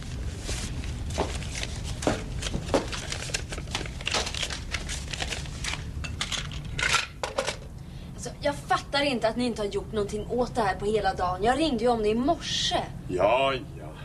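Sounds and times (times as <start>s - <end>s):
paper rustling: 0.0s - 6.6s
steady low hum: 0.0s - 14.0s.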